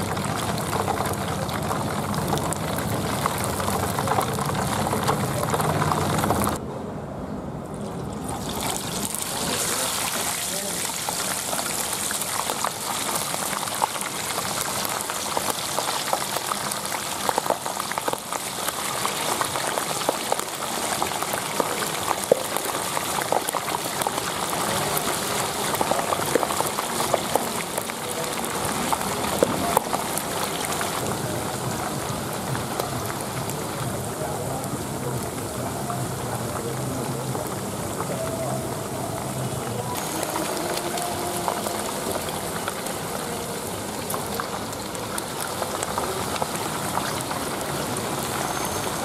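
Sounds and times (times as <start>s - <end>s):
fish deep-frying in oil: 0.0s - 6.6s, 7.8s - 49.0s.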